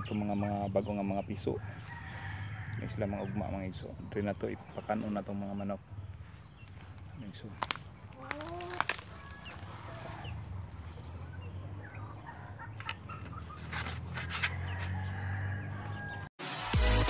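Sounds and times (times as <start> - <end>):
chicks clucking: 0.0 - 16.3
electronic music: 16.4 - 17.0.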